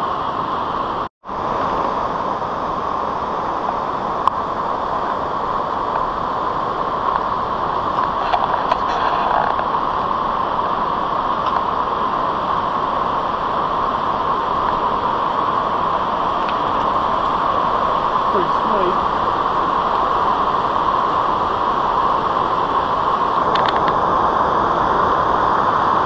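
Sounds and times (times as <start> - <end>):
stream rushing through rock gorge: 0.0 - 26.0.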